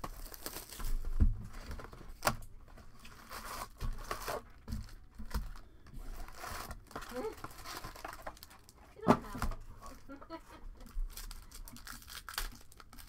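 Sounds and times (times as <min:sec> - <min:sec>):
wrapping and cardboard tearing: 0:00.0 - 0:10.2, 0:10.8 - 0:13.0.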